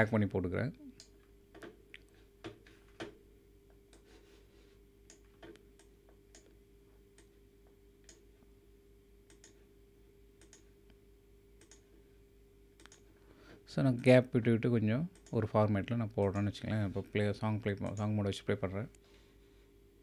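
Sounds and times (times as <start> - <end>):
faint electrical hum: 0.0 - 20.0
computer mouse clicks: 9.3 - 9.6, 10.4 - 10.7, 11.6 - 11.9, 12.8 - 13.1.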